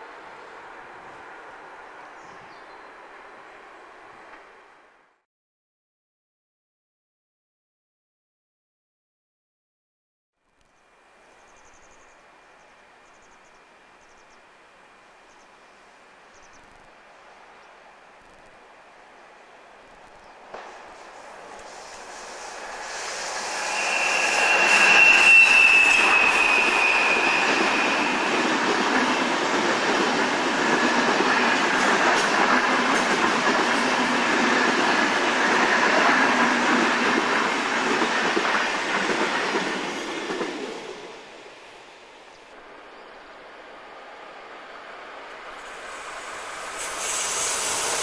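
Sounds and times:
wheels rumbling on rail: 16.0 - 48.0
high thin whine: 21.0 - 28.7.

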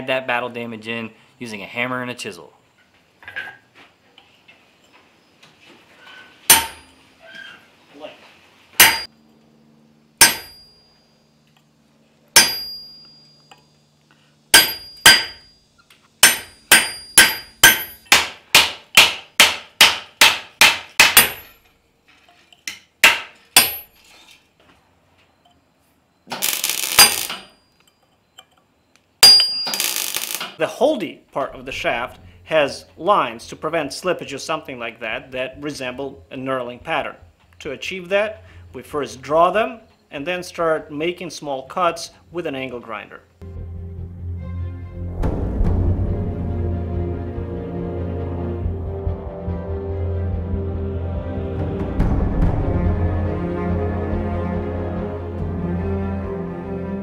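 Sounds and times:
hammer striking steel chisel: 6.5 - 7.0, 8.8 - 9.1, 10.2 - 10.8, 12.3 - 13.6, 14.5 - 15.5, 16.2 - 21.6, 22.6 - 24.0, 26.3 - 28.0, 29.2 - 30.5.

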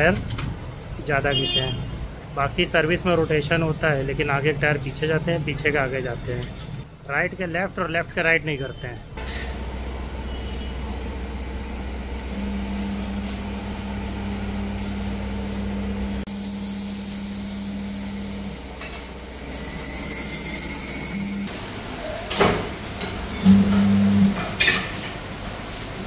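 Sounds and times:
workshop machinery humming: 0.0 - 26.0
steady low tone: 10.7 - 16.8.

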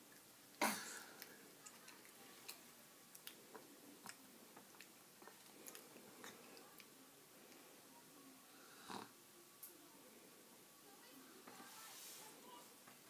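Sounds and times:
toddler mouth chewing clicks: 1.2 - 6.9.

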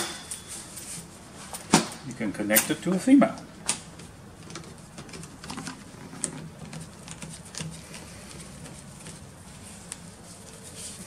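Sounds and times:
faint room hum: 0.0 - 11.0
gloved hands rubbing: 6.8 - 11.0.

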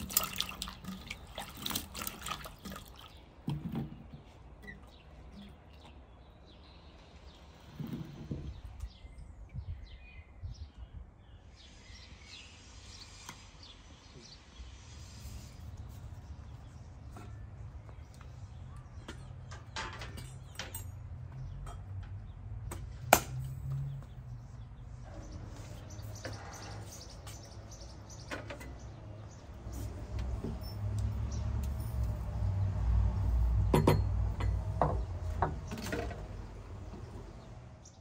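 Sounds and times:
metal samovar knocks and clinks: 18.9 - 23.4, 33.6 - 36.3.

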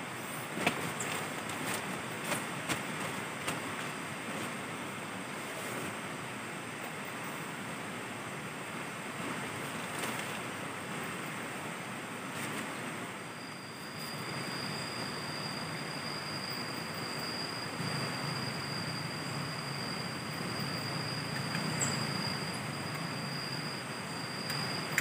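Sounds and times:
thin high steady tone: 13.1 - 25.0.

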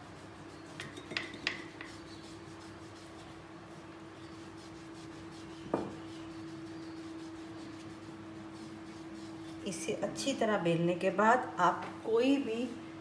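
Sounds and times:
rolling pin rubbing on mat: 0.0 - 10.1
steady hum: 0.0 - 13.0
knock: 5.7 - 6.0.

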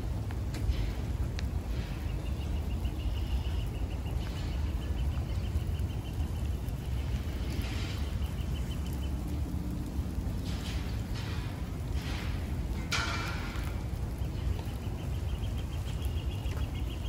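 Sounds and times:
low rumble: 0.0 - 17.0
songbird trilling: 2.0 - 9.4.

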